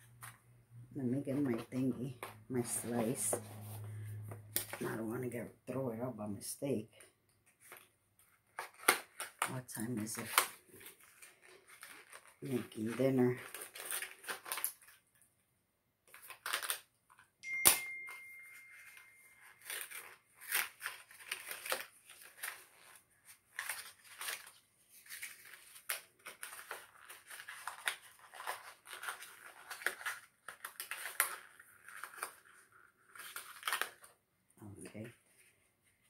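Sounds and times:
packaging torn and crinkled: 7.6 - 15.2, 16.1 - 17.3, 18.9 - 34.2
thin ringing tone: 17.4 - 19.6.

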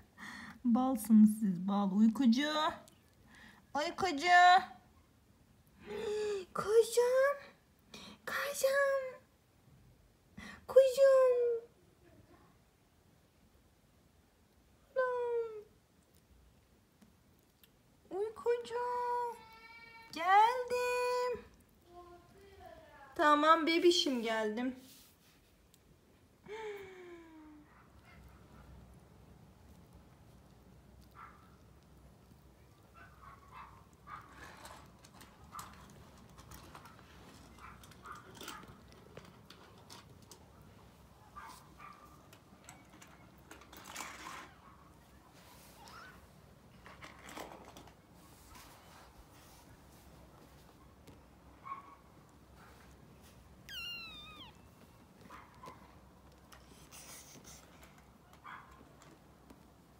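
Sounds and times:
kittens scrambling clicks and rustles: 29.6 - 51.4, 52.0 - 59.9
faint short squeaks: 53.6 - 54.8
kittens mewing: 53.6 - 54.8.

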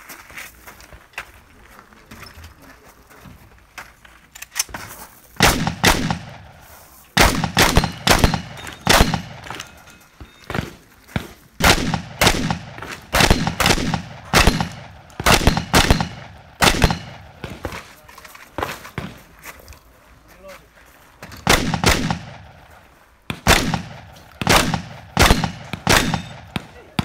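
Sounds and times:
shotgun shots echoing: 5.4 - 6.6, 7.2 - 9.8, 10.5 - 17.8, 21.4 - 22.6, 23.3 - 27.0.

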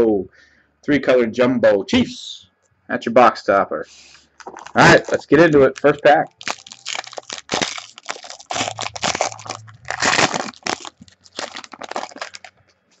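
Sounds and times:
foil wrapper tearing and crinkling: 4.4 - 12.6.

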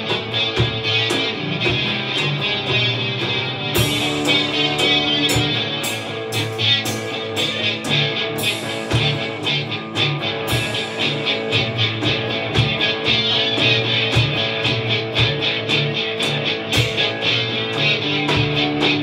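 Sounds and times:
electric guitar chords: 0.0 - 19.0
steady drum beat: 0.0 - 19.0.

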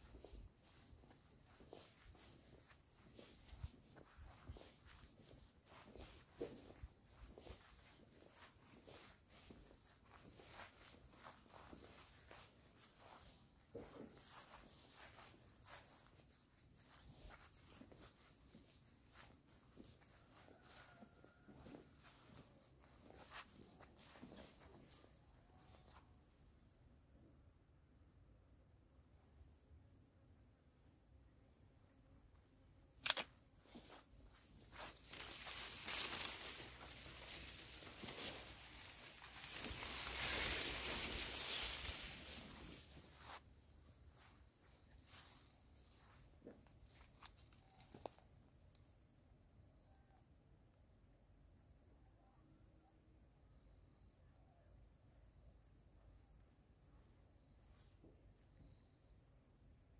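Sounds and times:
grass and leaves rustling: 0.0 - 26.4, 32.9 - 48.5
soft footsteps on dirt path: 0.0 - 27.3, 30.3 - 49.0.

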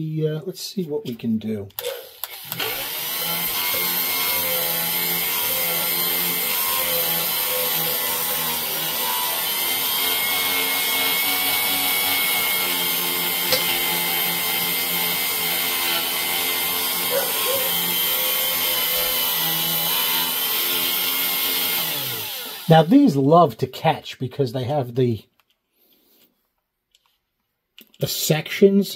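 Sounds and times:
power tool motor running: 1.8 - 22.9.

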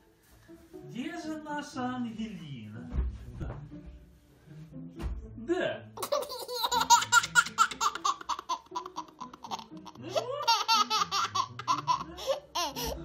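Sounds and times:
toddler girl giggling: 6.0 - 13.0.

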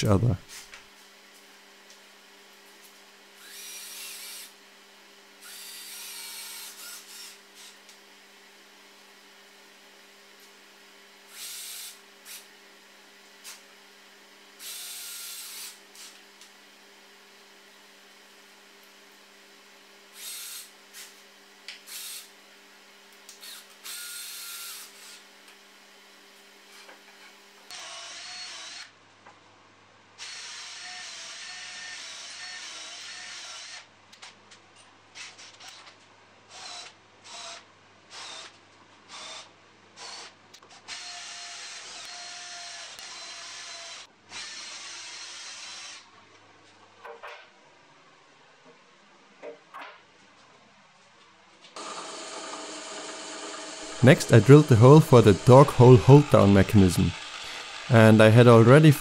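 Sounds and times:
drill whining boring into wood: 3.4 - 4.6, 5.4 - 7.4, 11.3 - 12.4, 14.6 - 15.8, 20.2 - 20.7, 21.9 - 22.3, 23.4 - 25.2, 27.7 - 28.9, 30.2 - 33.9, 36.5 - 38.5, 39.1 - 40.3, 40.9 - 46.1, 51.8 - 57.9
cordless drill driving screws: 5.4 - 7.7, 11.3 - 12.4, 36.5 - 40.3, 40.9 - 46.0, 51.8 - 57.9.

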